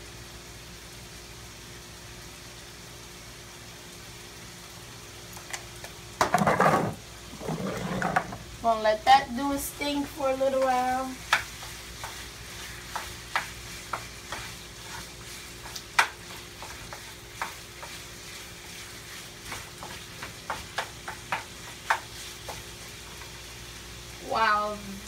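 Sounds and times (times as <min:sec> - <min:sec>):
chicken sizzling in a skillet: 0:00.0 - 0:25.0
wooden spoon knocking on pan: 0:06.2 - 0:08.4, 0:10.5 - 0:12.2, 0:12.9 - 0:14.6, 0:15.6 - 0:18.0, 0:19.4 - 0:22.7.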